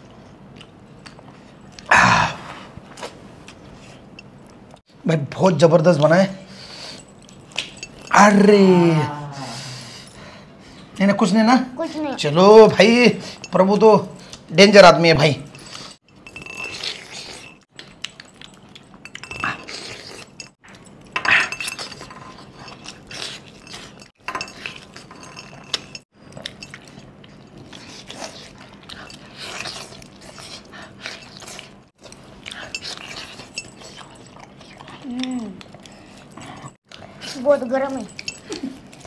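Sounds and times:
wet chewing and mouth sounds: 0.0s - 4.8s, 15.5s - 39.0s
bangles clinking on steel bowl: 6.8s - 8.2s, 15.4s - 26.8s, 32.5s - 39.0s.

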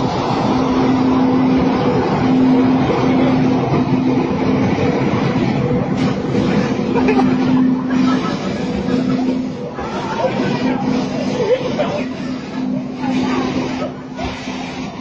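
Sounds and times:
low hum: 0.0s - 14.3s
passenger train passing: 0.0s - 15.0s
water spraying from pipe: 0.0s - 15.0s.

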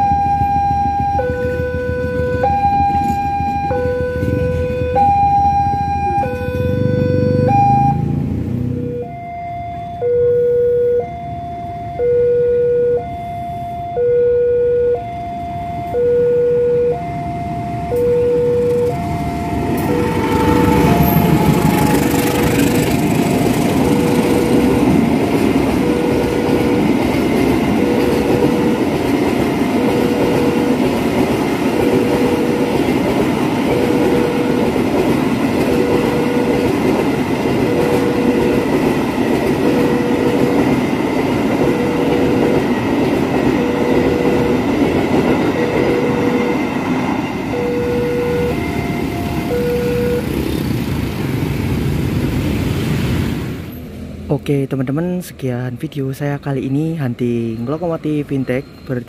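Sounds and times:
level crossing alarm two-note tone: 0.0s - 27.0s, 33.5s - 34.7s, 37.6s - 38.8s, 45.4s - 50.4s
freight train passing: 0.0s - 59.0s.

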